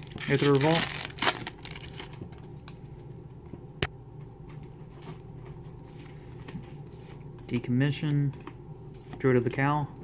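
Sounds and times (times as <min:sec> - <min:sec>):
cards rustling in hands: 0:00.0 - 0:02.9.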